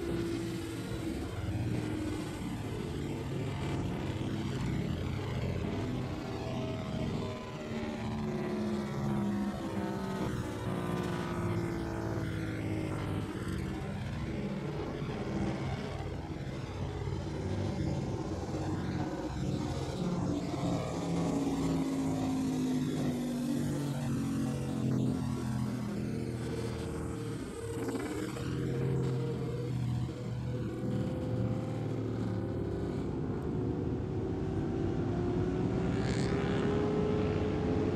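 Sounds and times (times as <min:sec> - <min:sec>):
motorcycle engines accelerating: 0:00.0 - 0:37.9
motorcycles riding past: 0:35.0 - 0:37.9.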